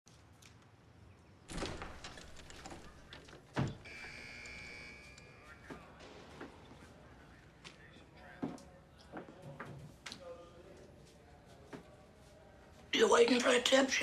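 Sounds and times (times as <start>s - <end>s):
electric buzzer: 3.8s - 5.4s.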